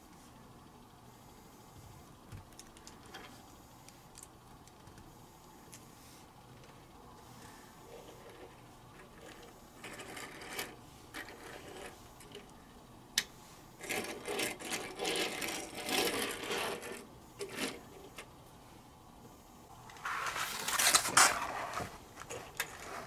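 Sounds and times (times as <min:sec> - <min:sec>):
plastic wheels rolling on wood: 0:13.8 - 0:17.9.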